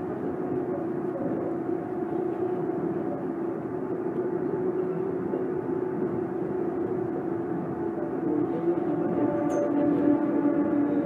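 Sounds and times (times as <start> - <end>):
train motor whine: 8.0 - 11.0.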